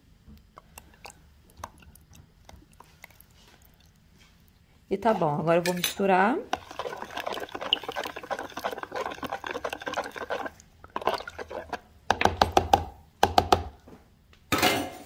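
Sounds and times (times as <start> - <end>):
liquid sloshing: 0.4 - 4.6, 6.1 - 12.5.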